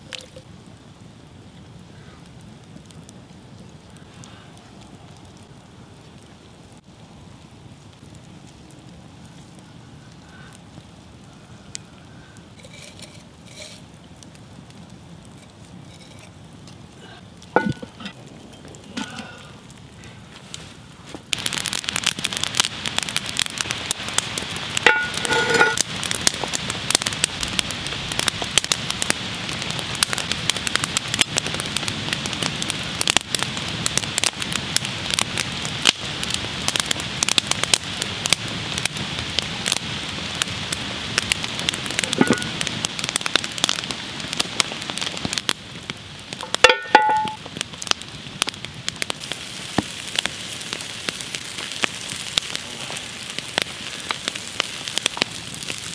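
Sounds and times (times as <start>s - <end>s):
campfire crackling: 0.0s - 55.9s
vegetables sizzling in hot fat: 12.6s - 13.9s, 21.4s - 34.7s, 35.4s - 44.6s, 45.2s - 55.9s.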